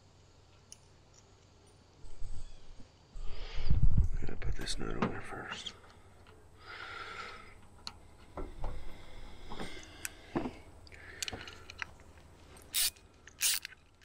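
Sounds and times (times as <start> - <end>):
small metal clicks and taps: 10.8 - 12.1.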